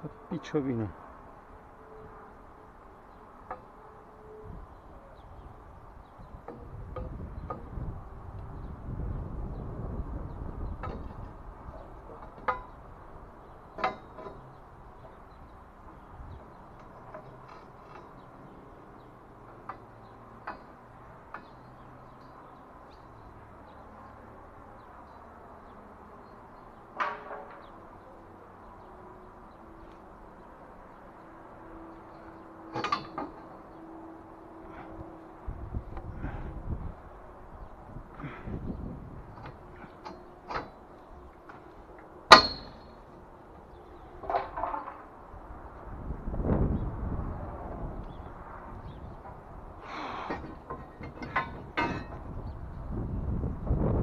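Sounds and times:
scaffold parts knocking and clanking: 0:13.7 - 0:15.1, 0:26.9 - 0:27.8, 0:32.7 - 0:33.6, 0:42.3 - 0:43.0, 0:44.2 - 0:45.2, 0:50.1 - 0:52.4.

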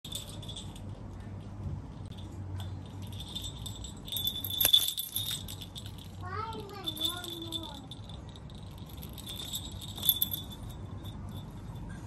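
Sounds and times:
jingle bell in plastic ball: 0:00.0 - 0:01.0, 0:02.0 - 0:12.0.

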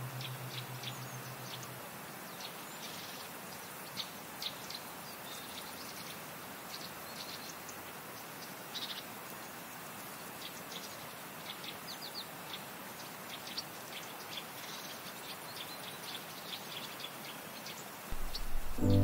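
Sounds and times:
steady background hiss: 0:00.0 - 0:19.0
birds chirping: 0:18.1 - 0:19.0.

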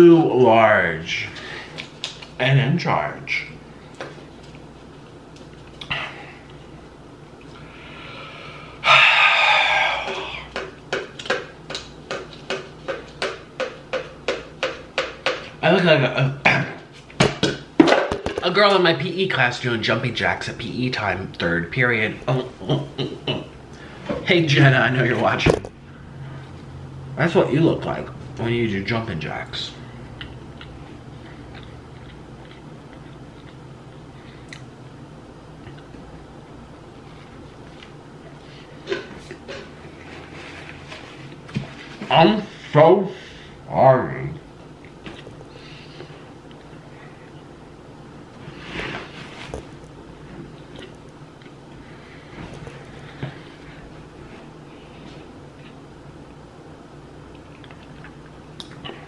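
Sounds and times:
low steady hum: 0:00.0 - 0:59.0
paper cups knocking together: 0:10.5 - 0:15.6
person chewing: 0:30.2 - 0:34.8, 0:50.5 - 0:51.6, 0:57.2 - 0:59.0.

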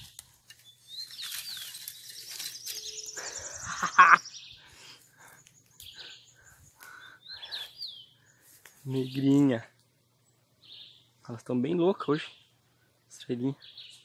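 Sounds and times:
birds calling: 0:00.0 - 0:14.0
long trilled bird call: 0:00.6 - 0:08.4.

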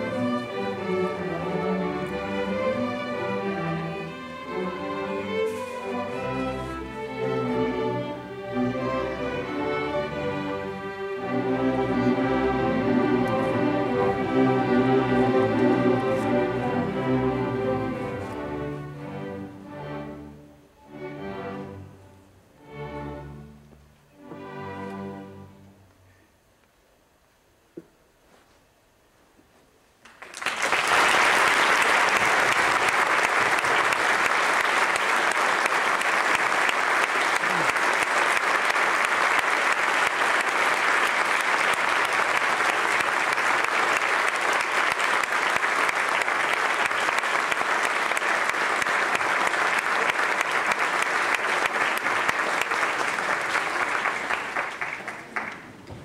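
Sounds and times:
audience applauding: 0:30.0 - 0:56.0.

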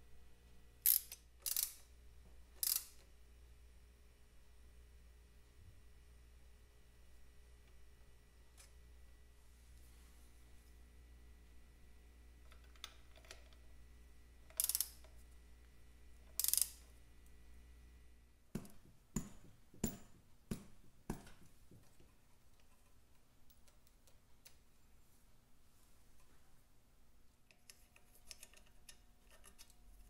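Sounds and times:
sharp clicks and knocks: 0:18.5 - 0:24.6.

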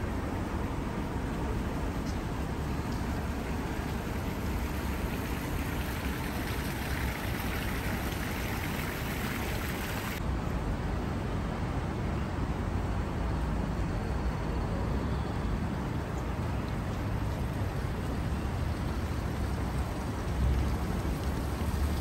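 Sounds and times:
light rain hissing: 0:00.0 - 0:10.2.

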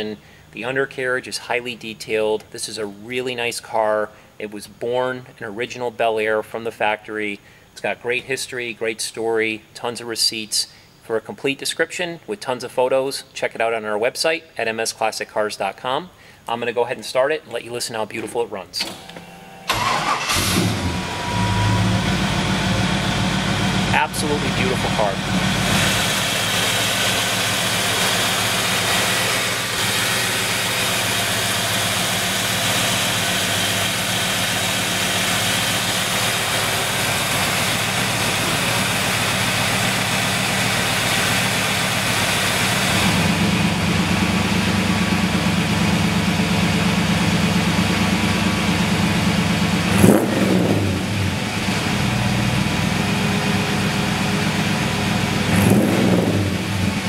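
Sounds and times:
engine revving: 0:19.7 - 0:45.4, 0:47.9 - 0:57.0
car engine idling: 0:19.7 - 0:57.0.

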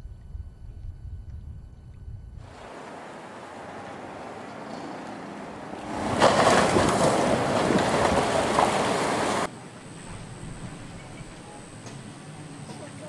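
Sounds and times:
floodwater rushing: 0:02.4 - 0:13.0.

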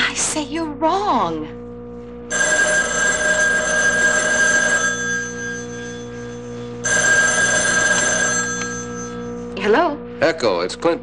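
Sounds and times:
telephone bell ringing: 0:02.3 - 0:09.5.

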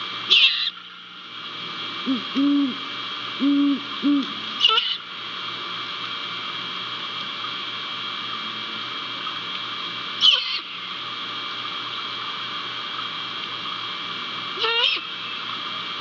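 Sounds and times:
background hiss and hum: 0:00.0 - 0:16.0
owl call: 0:00.3 - 0:00.8, 0:02.1 - 0:02.8, 0:03.4 - 0:05.0, 0:10.2 - 0:10.7, 0:14.6 - 0:15.1.

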